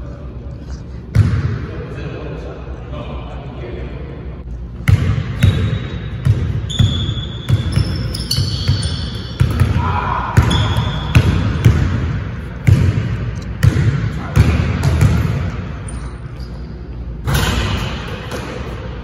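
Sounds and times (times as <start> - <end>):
basketball bouncing on wooden floor: 4.9 - 9.8
sneaker squeaks: 5.3 - 9.6, 10.4 - 11.3, 15.8 - 18.8.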